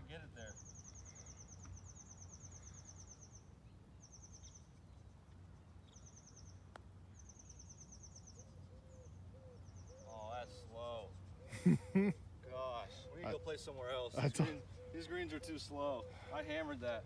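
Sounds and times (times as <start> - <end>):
rapid bird trills: 7.2 - 17.0.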